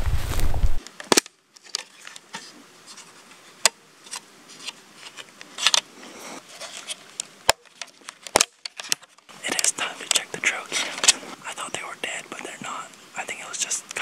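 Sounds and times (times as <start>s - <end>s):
light scraping: 1.6s - 8.2s.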